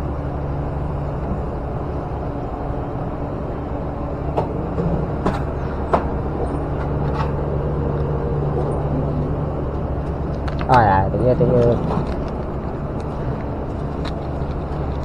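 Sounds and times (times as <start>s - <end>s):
low machinery hum: 0.0s - 15.0s.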